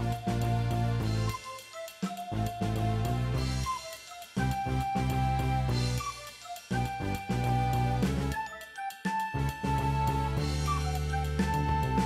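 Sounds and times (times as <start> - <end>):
instrumental background music: 0.0 - 12.0
bass line: 2.4 - 3.7, 6.8 - 8.4, 9.4 - 12.0.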